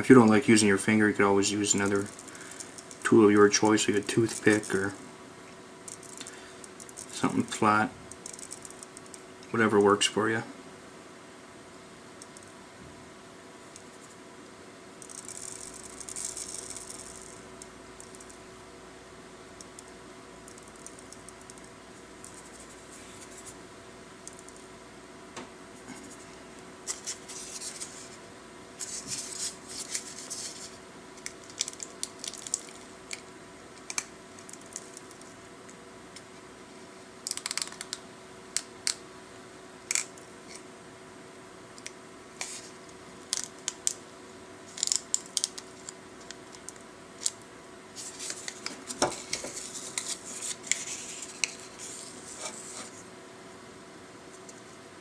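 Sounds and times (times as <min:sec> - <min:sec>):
solder balls skittering on stencil: 0:00.9 - 0:05.1, 0:05.8 - 0:09.3, 0:14.9 - 0:18.6, 0:19.5 - 0:24.7, 0:28.8 - 0:36.3, 0:41.8 - 0:51.8.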